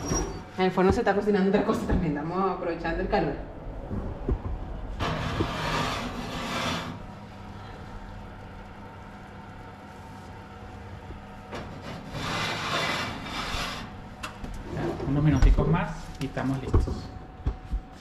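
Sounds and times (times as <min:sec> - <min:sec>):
steady low hum: 0:00.0 - 0:18.0
baking dishes rustling and scraping: 0:11.5 - 0:16.2.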